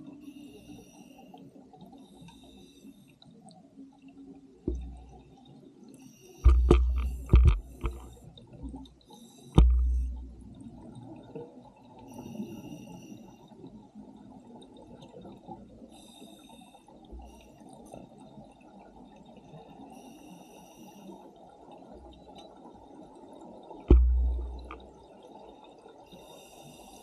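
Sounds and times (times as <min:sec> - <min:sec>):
exhaled bubbles rumbling underwater: 0:03.9 - 0:05.8, 0:06.5 - 0:09.0, 0:09.6 - 0:12.7, 0:21.6 - 0:25.7.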